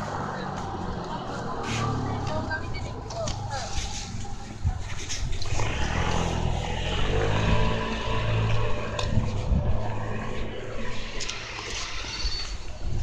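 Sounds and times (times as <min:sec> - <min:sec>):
vehicle engine hum: 0:00.0 - 0:13.0.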